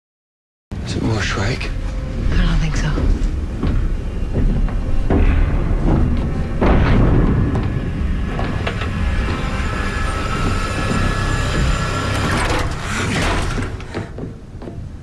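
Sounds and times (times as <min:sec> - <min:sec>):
machinery rumbling and grinding: 0:01.0 - 0:15.0.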